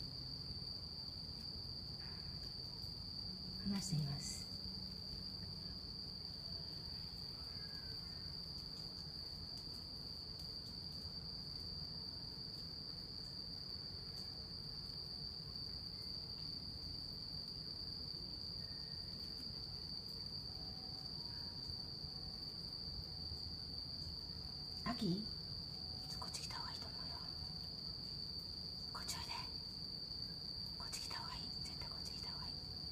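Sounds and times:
crickets trilling: 0:00.0 - 0:32.9.

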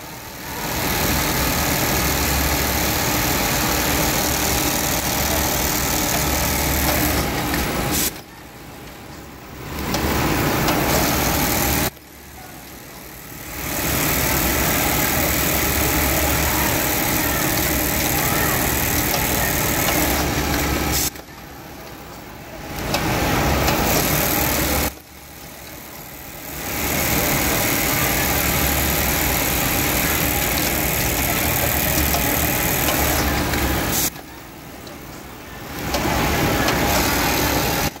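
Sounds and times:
sewing machine stitching: 0:00.3 - 0:08.1, 0:13.3 - 0:21.1, 0:22.7 - 0:24.9, 0:25.6 - 0:34.1.

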